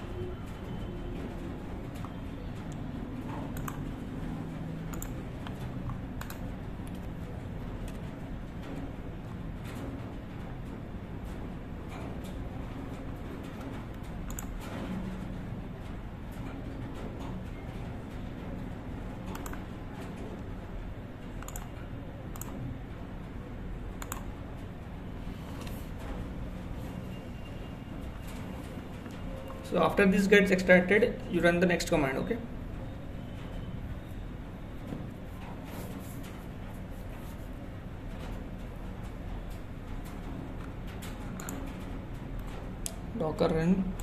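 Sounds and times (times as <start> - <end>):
keyboard and mouse clicks: 2.0 - 3.9, 4.9 - 7.1, 13.5 - 14.8, 19.3 - 19.7, 21.4 - 22.6, 24.0 - 24.3, 40.6 - 41.8
mouse and keyboard clicks: 3.6 - 3.8, 21.4 - 21.7.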